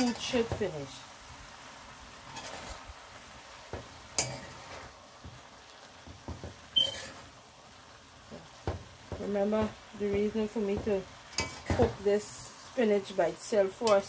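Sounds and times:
low sizzle from pot: 0.0 - 14.0
spoon scraping metal pot: 2.3 - 2.8, 6.8 - 7.3, 11.3 - 11.9.

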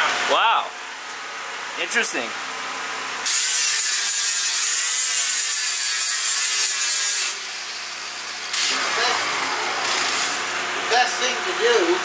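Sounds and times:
angle grinder grinding steel: 3.2 - 10.5.

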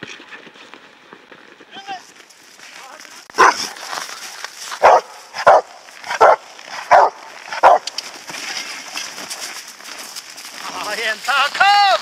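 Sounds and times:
dog barking loudly: 3.4 - 3.8, 4.8 - 7.9.

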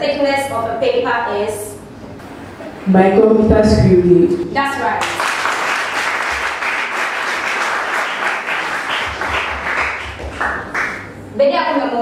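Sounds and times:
audience applauding: 5.0 - 11.2.

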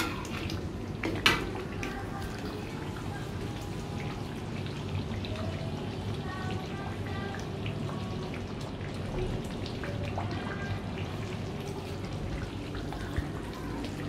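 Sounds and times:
sauce frying in oil: 0.0 - 14.0.

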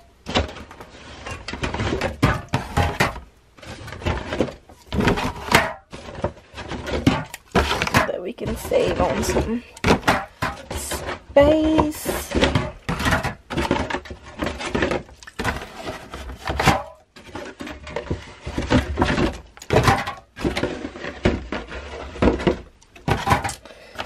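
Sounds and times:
cardboard box of cans shifted: 0.0 - 24.0.

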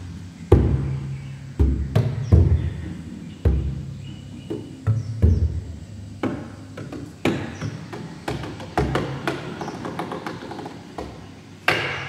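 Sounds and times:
wooden knocks and taps: 6.2 - 12.0.

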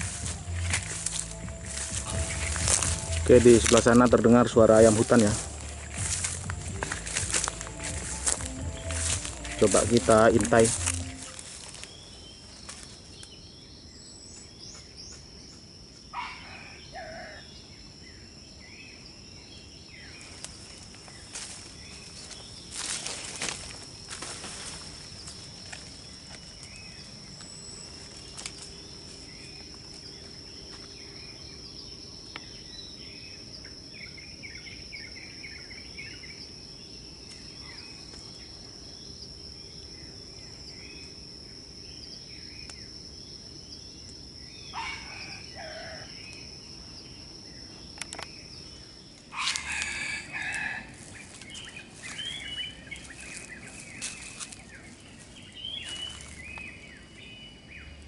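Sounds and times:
high-pitched insect drone: 0.0 - 58.0
small birds chirping: 0.0 - 58.0
junglefowl crowing: 16.1 - 17.5, 44.7 - 46.2, 49.3 - 51.2
noisy animal calls: 16.1 - 17.5, 44.6 - 46.2, 49.3 - 52.4.

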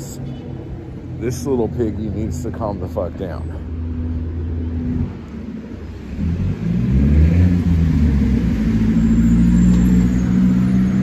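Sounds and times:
vehicle engine accelerating: 4.7 - 11.0.

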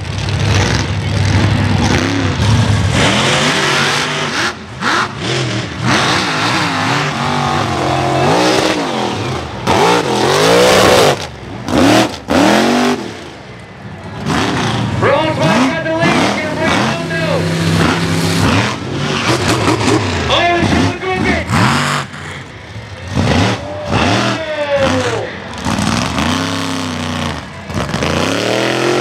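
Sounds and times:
truck engine revving hard: 0.0 - 29.0.

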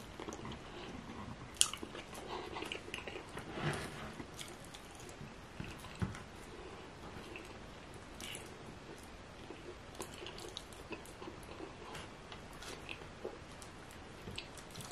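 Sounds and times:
chewing and biting: 0.1 - 3.3, 8.2 - 11.9.

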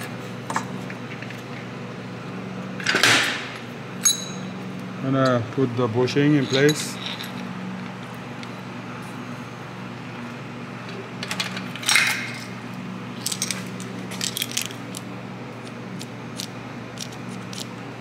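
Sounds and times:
metal parts clinking: 6.3 - 7.5, 13.2 - 15.0.

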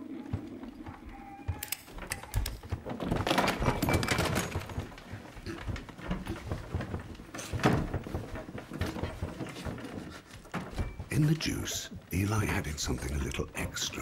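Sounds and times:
knocks and rattles on table: 1.9 - 11.2.

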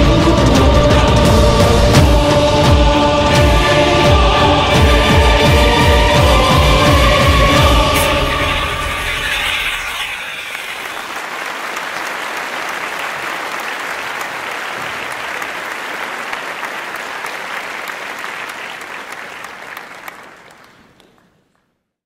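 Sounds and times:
crowd applauding: 8.5 - 21.6.

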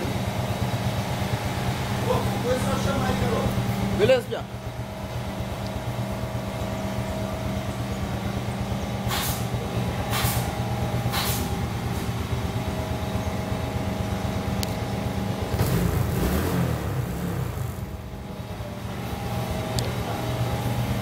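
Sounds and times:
motorcycle engine idling: 0.0 - 21.0
short hissing noises: 9.1 - 9.5, 10.1 - 10.5, 11.1 - 11.5.

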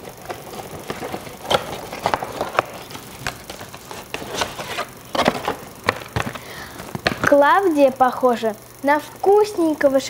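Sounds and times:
cardboard and plastic packaging crackling: 0.0 - 7.5.

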